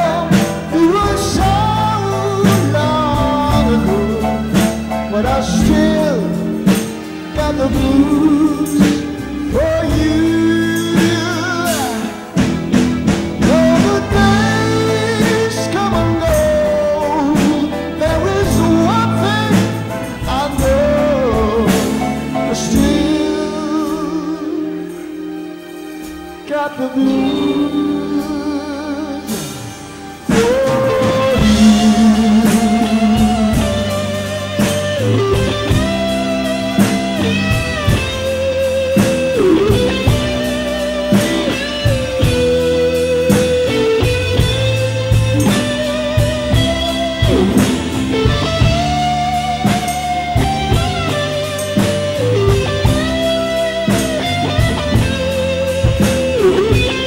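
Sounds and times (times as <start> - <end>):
blues band playing: 0.0 - 57.0
electric guitar solo with bent notes: 29.8 - 57.0.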